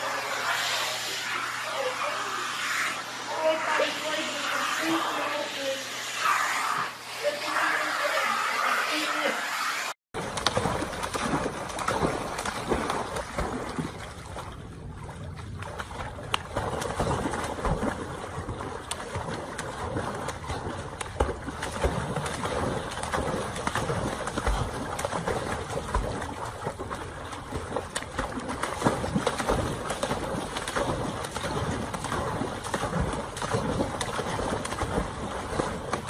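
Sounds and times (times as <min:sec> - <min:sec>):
dog splashing in pool water: 0:10.2 - 0:36.0.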